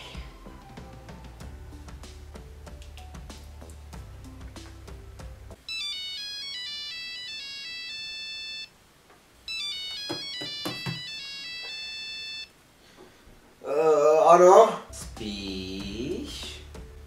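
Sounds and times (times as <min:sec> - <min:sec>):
phone ringtone melody: 0:05.6 - 0:08.7, 0:09.5 - 0:12.5
knocks and rustles: 0:09.0 - 0:11.1.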